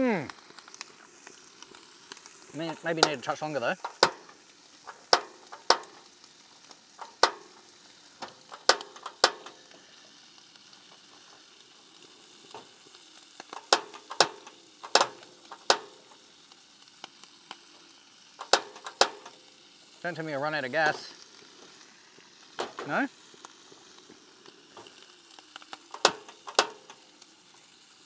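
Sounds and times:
food sizzling in a pan: 0.0 - 28.0
utensil clacking against pan: 3.8 - 6.1, 7.0 - 7.6, 8.2 - 9.6, 13.5 - 16.0, 18.4 - 19.4, 25.9 - 27.0.

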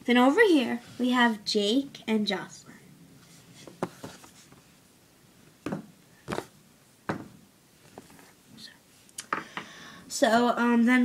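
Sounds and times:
handling knocks: 5.6 - 6.5, 7.1 - 8.1.

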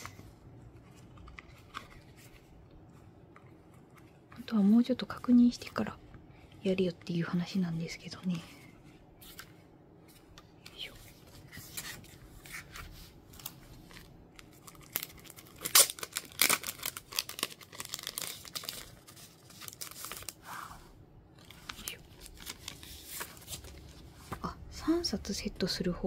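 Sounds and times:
plastic packaging crinkling: 13.4 - 20.4, 21.4 - 24.4.

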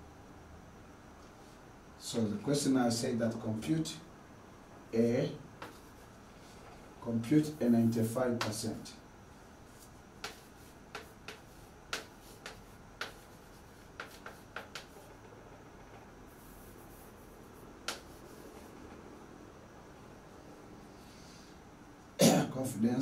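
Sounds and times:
chalk tapping on a blackboard: 5.6 - 6.2, 8.4 - 8.8, 9.7 - 19.0.

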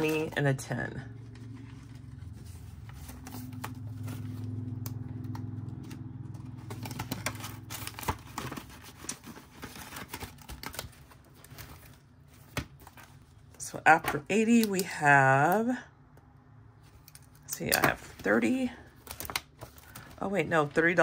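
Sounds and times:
low hum: 0.0 - 13.4
paper rustling: 1.1 - 14.7, 16.8 - 21.0.

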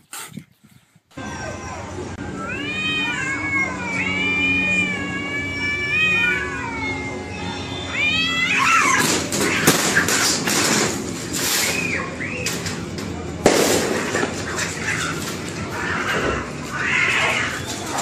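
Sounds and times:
cats yowling: 1.2 - 11.0, 14.0 - 18.0
harsh screeching and clatter: 7.3 - 18.0.

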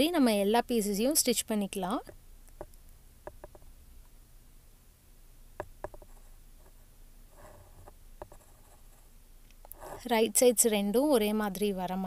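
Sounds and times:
faint clicks and taps: 2.0 - 4.2, 5.6 - 6.8, 7.4 - 8.7.

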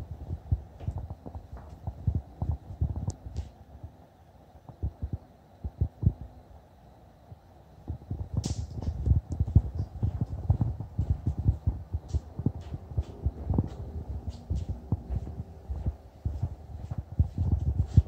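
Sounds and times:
footsteps on wooden floor: 0.8 - 1.9, 8.8 - 18.0.

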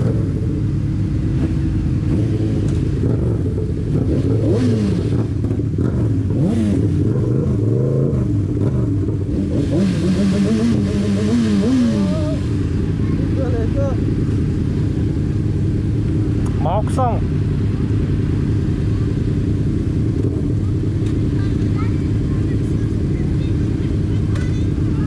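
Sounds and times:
car engines droning: 0.0 - 25.0
engines revving: 0.0 - 25.0.

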